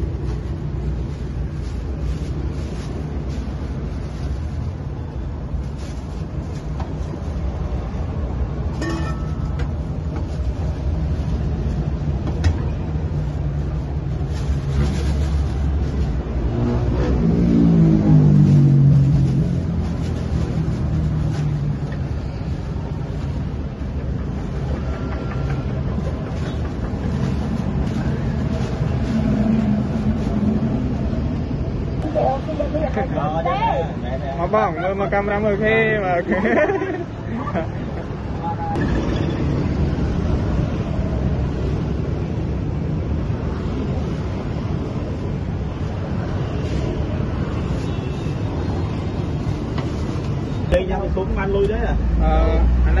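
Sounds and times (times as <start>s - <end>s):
plastic bag rustling: 0.0s - 12.2s, 12.9s - 16.5s, 18.2s - 23.5s, 26.2s - 31.0s
road traffic rumble: 0.0s - 53.0s
motorbikes passing: 15.4s - 53.0s.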